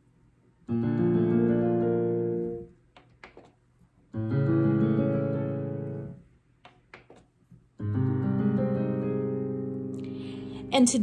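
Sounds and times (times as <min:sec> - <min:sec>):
digital piano chords: 0:00.7 - 0:02.7, 0:04.1 - 0:06.2, 0:07.8 - 0:11.0.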